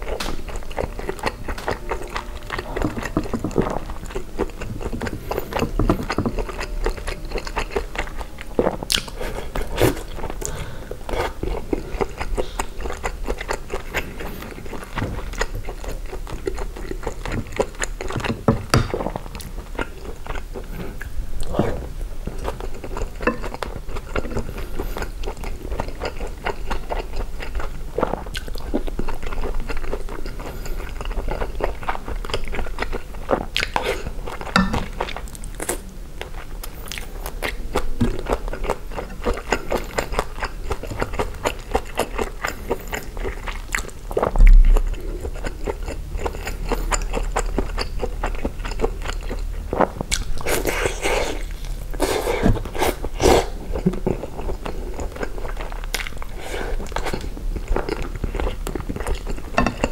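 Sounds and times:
person chewing food: 0:00.0 - 0:59.9.

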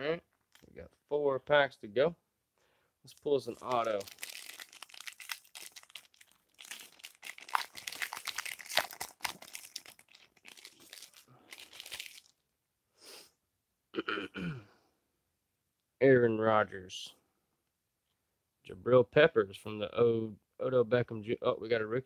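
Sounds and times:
foil wrapper crinkling: 0:03.2 - 0:12.4.

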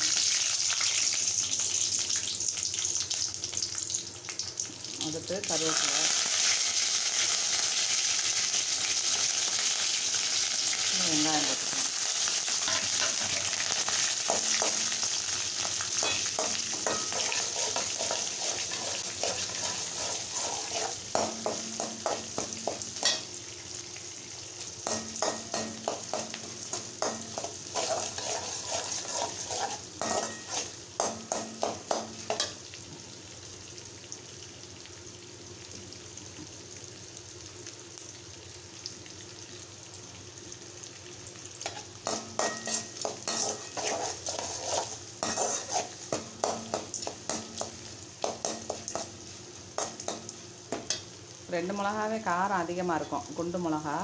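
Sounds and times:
vegetables sizzling in oil: 0:00.0 - 0:54.0
metal spoon scraping a pan: 0:12.5 - 0:15.0, 0:16.0 - 0:23.3, 0:24.8 - 0:32.6, 0:41.6 - 0:49.2.

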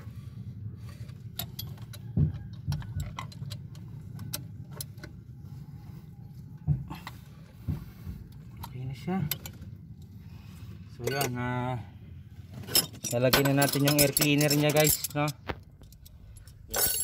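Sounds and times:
steady low hum: 0:00.0 - 0:17.0
metallic clicks and knocks: 0:01.3 - 0:05.2, 0:12.6 - 0:17.0.

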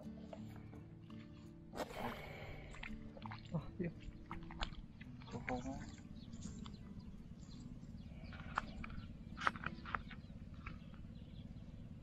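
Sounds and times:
steady low rumble: 0:04.6 - 0:12.0.

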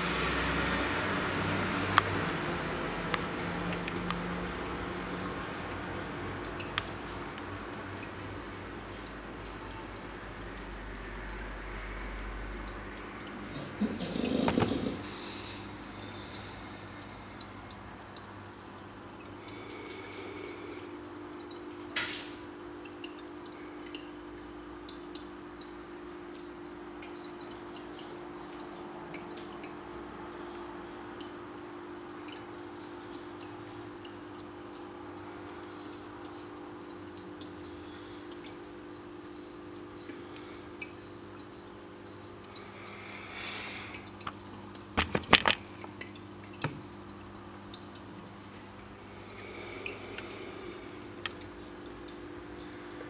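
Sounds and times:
cricket chirping: 0:00.0 - 0:53.0.

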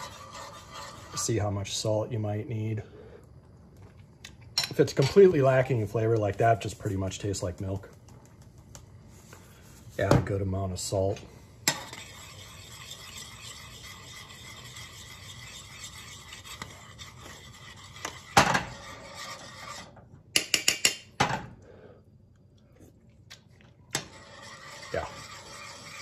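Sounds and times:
hand mill grinding salt: 0:12.0 - 0:18.2, 0:24.1 - 0:26.0.

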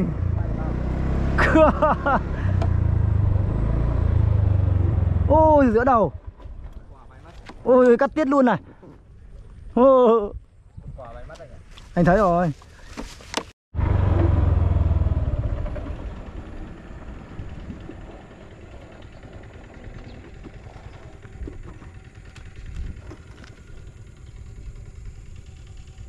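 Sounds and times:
motorbike engine slowing and idling: 0:00.1 - 0:07.2, 0:13.8 - 0:26.0.

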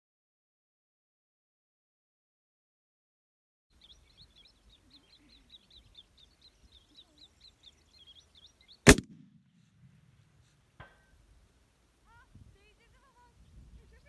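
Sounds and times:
bird chirping: 0:03.7 - 0:10.7
rifle shot: 0:08.9 - 0:10.0.

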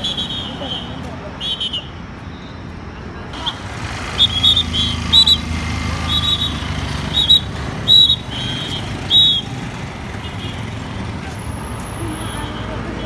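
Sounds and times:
vehicle engines running: 0:00.0 - 0:13.0
shrill police whistle blasts: 0:06.0 - 0:09.5.

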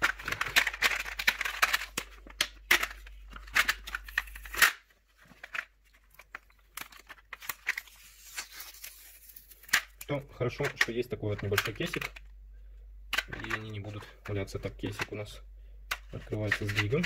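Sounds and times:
plastic packaging crinkling: 0:00.0 - 0:12.3.

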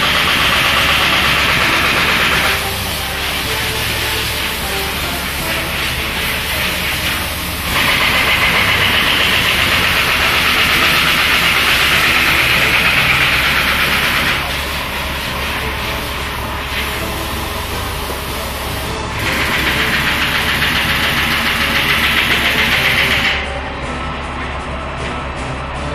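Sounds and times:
hiss: 0:00.0 - 0:23.5
machine humming: 0:00.0 - 0:25.9.

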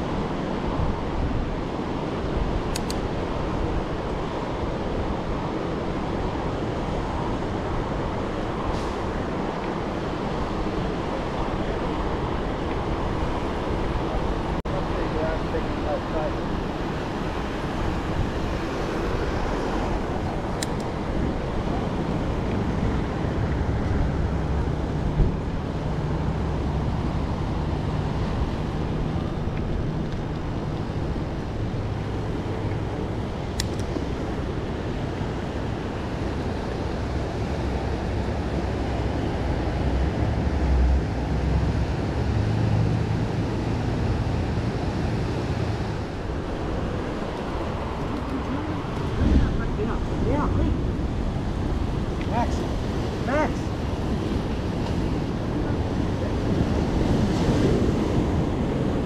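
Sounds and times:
road traffic passing: 0:00.0 - 0:59.0
wind noise: 0:00.0 - 0:59.0
faint sharp clicks: 0:02.7 - 0:03.0
bike rolling noise: 0:45.5 - 0:59.0.

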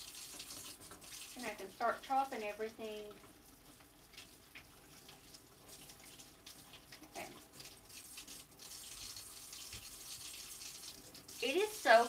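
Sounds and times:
faucet running into sink: 0:00.0 - 0:02.4, 0:05.7 - 0:12.0.

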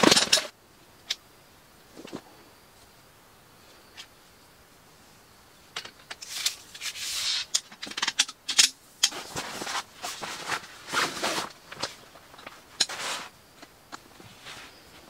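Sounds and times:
metal poles clinking and knocking: 0:00.0 - 0:00.5, 0:05.8 - 0:10.6
fabric rustling: 0:09.1 - 0:13.4, 0:14.2 - 0:15.0.

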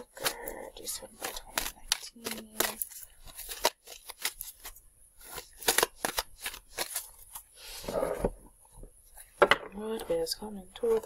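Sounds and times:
cards snapping and clicking: 0:00.0 - 0:04.7, 0:05.3 - 0:07.1
cards sliding rustle: 0:00.0 - 0:08.3.

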